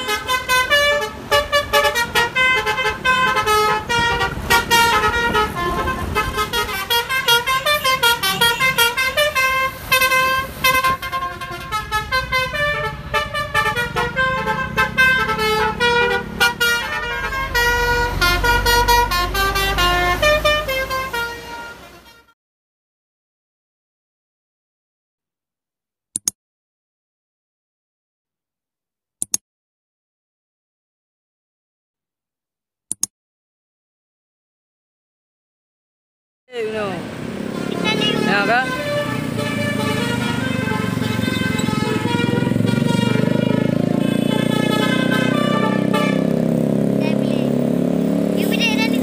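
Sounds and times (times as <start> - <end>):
bus engine rumbling: 0.0 - 22.2, 36.5 - 49.0
musical bus horn playing tune: 0.0 - 22.4, 37.3 - 47.6.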